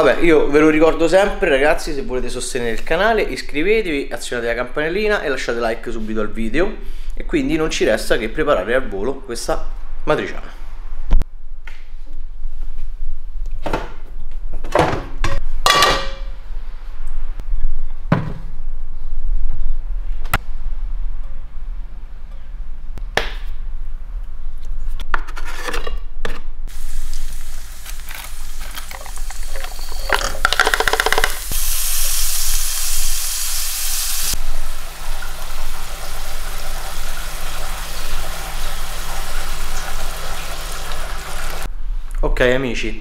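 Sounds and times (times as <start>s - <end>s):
hiss of water or frying: 26.7s - 41.7s
pans and utensils clattering: 28.6s - 31.5s.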